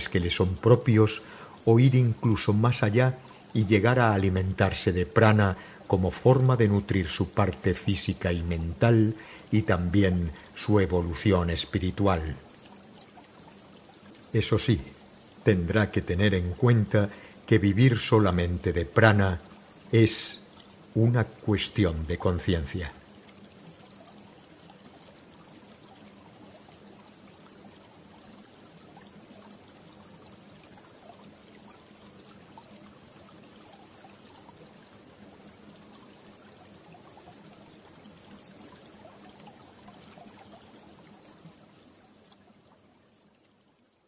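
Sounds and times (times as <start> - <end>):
stream trickling: 0.0 - 44.0.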